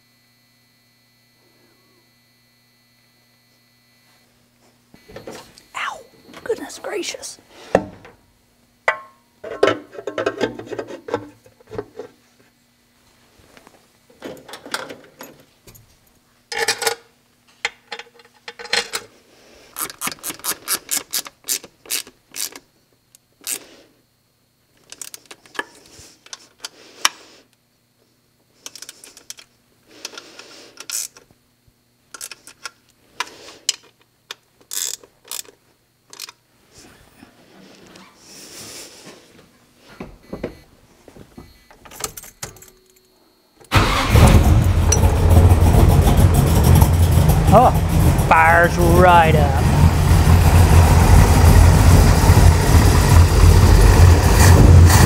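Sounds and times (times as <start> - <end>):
ratchet wrench clicking: 19.8 - 22.6, 30.8 - 31.2, 34.6 - 35.5, 36.1 - 36.4.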